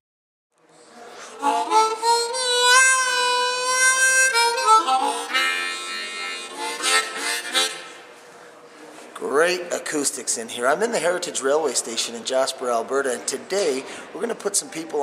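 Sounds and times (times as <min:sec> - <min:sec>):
harmonica chords: 0:01.4 - 0:08.1.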